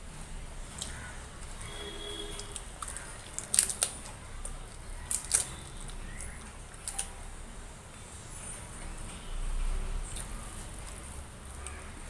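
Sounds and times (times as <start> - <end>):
crisp snack crunching: 0.7 - 7.3.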